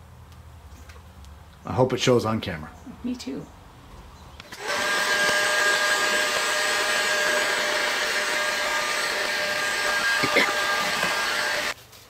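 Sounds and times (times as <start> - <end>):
heat gun fan whirring: 4.4 - 11.8.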